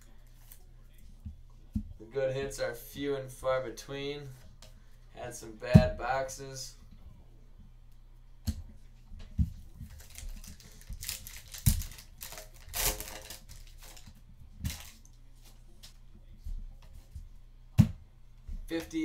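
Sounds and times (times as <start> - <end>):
wrappers crinkling and tearing: 9.8 - 15.1.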